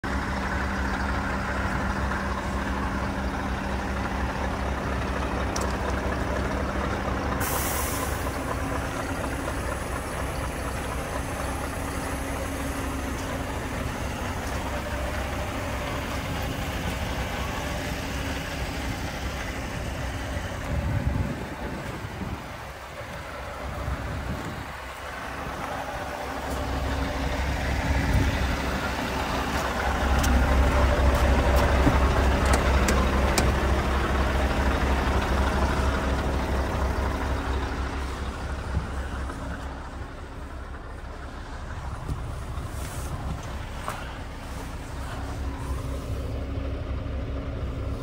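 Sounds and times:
diesel truck engine idling: 0.0 - 48.0
compressed air hiss: 7.4 - 8.3
low bump: 26.4 - 45.6.

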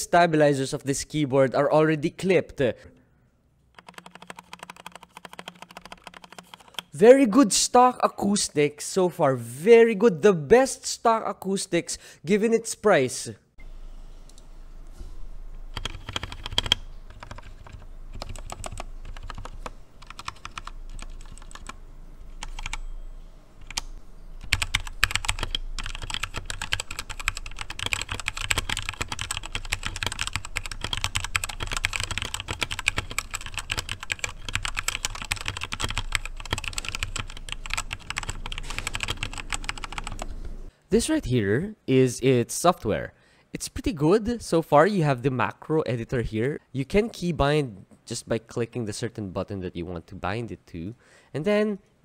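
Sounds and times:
mechanical keyboard typing: 3.8 - 6.9, 15.7 - 21.8, 22.4 - 22.8, 23.6 - 40.3.

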